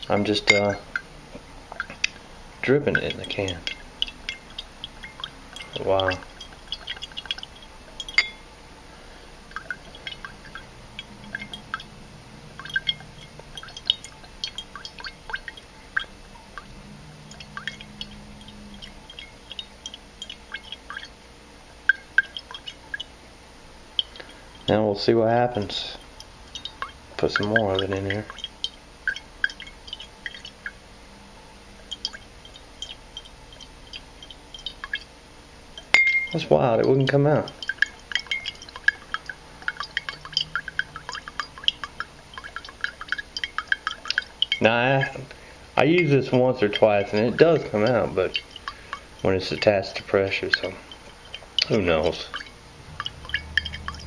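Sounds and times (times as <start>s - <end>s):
drops plinking into liquid: 0.0s - 8.5s, 9.5s - 21.2s, 21.8s - 23.1s, 24.0s - 24.7s, 25.5s - 30.8s, 31.8s - 35.1s, 35.7s - 54.0s
glass clink: 0.2s - 0.8s, 2.9s - 7.3s, 8.0s - 8.5s, 9.5s - 11.9s, 35.8s - 45.2s, 50.5s - 54.0s.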